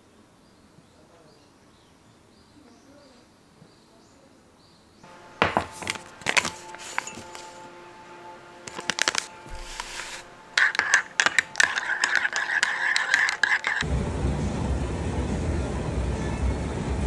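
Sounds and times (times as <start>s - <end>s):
background music: 5.1s - 17.0s.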